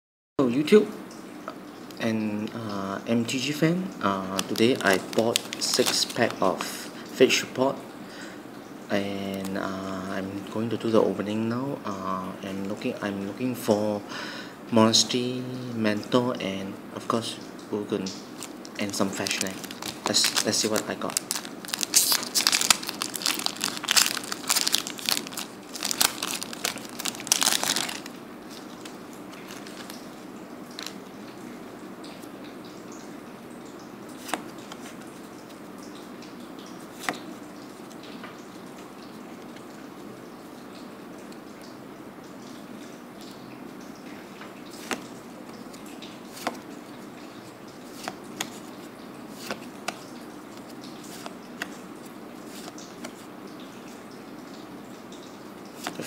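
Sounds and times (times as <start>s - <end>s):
faint room hiss: 0.4s - 56.0s
cards snapping: 4.4s - 6.7s, 18.4s - 30.0s
foil wrapper crinkling and tearing: 4.4s - 6.7s, 18.4s - 30.0s, 30.7s - 31.0s.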